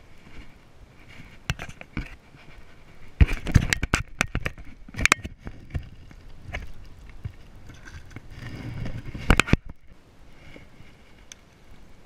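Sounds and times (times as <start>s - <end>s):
clicks and knocks of fish handling: 3.2s - 8.3s.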